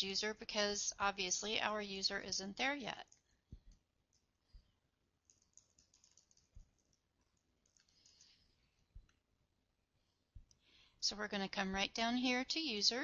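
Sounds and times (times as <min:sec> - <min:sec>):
faint keyboard typing: 0:02.8 - 0:09.2.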